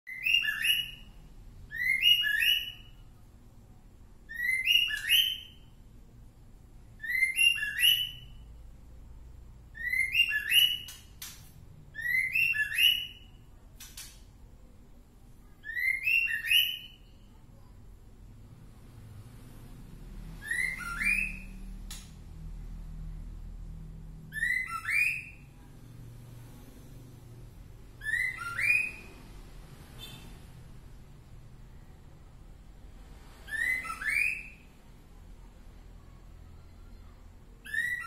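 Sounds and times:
sharp clicks: 13.8s - 14.4s.

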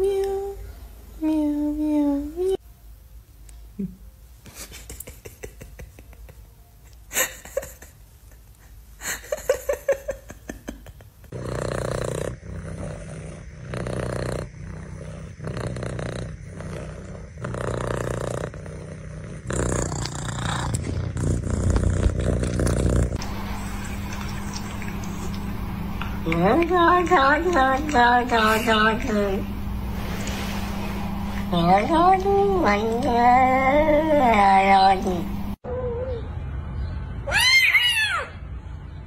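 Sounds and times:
cat purring loudly: 11.2s - 29.6s.

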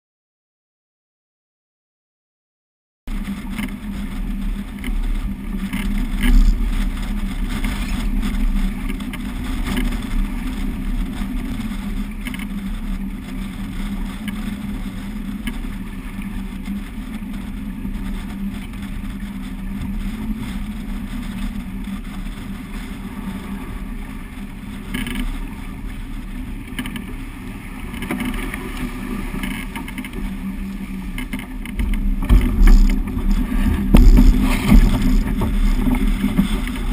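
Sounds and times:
water splashing along hull: 3.1s - 36.9s
wind buffeting microphone: 3.1s - 36.9s.

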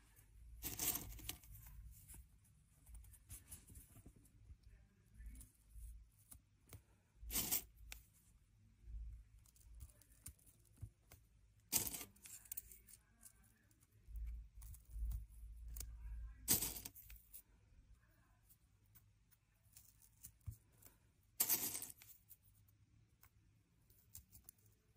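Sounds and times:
seed rattles: 21.4s - 22.1s.

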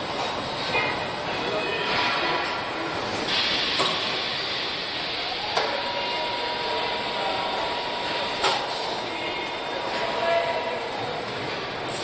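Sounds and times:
factory machinery hiss and hum: 0.0s - 12.0s
steady high tone: 4.9s - 11.2s.

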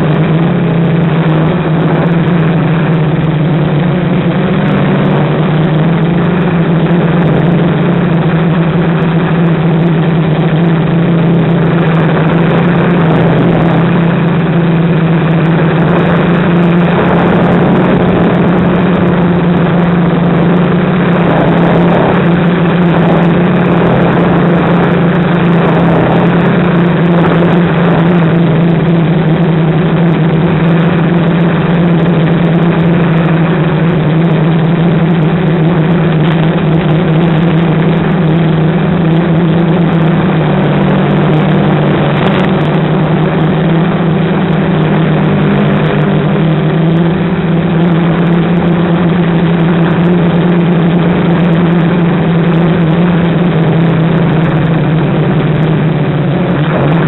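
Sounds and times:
quadcopter motors buzzing: 11.0s - 28.7s.

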